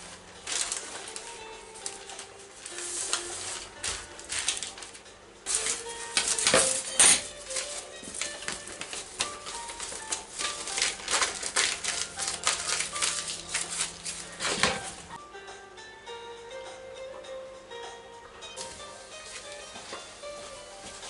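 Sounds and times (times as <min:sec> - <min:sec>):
soft background music: 0:00.0 - 0:21.0
plastic wrapper crinkling: 0:00.5 - 0:15.2
pork frying and crackling in oil: 0:08.2 - 0:15.2.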